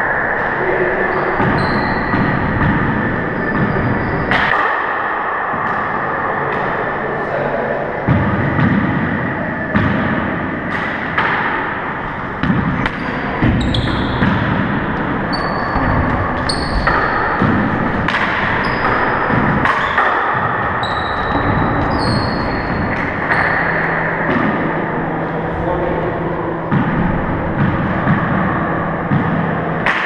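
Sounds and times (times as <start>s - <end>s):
sneaker squeaks on hardwood: 1.1s - 4.4s, 12.8s - 23.9s.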